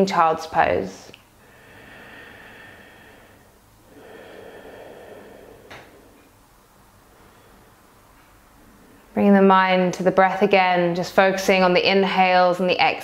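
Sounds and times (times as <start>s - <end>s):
woman breathing through nose: 1.4s - 6.4s, 7.0s - 8.0s.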